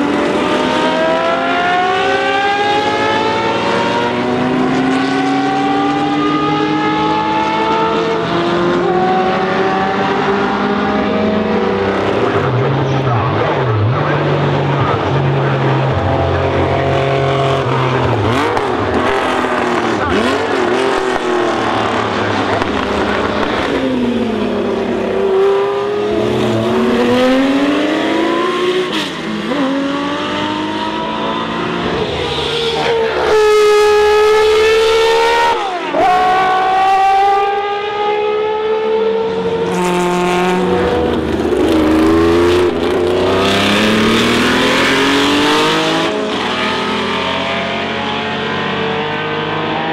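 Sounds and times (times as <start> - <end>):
racing car engines revving: 0.0 - 49.9.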